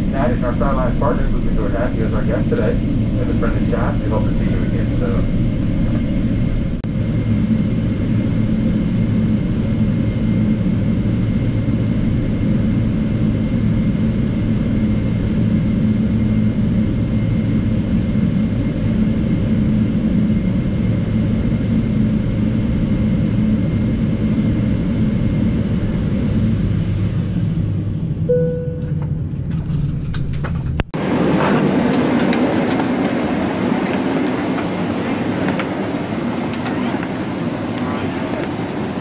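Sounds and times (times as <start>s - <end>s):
faint steady whine: 0.0s - 9.3s
airplane low rumble in cabin: 0.0s - 39.0s.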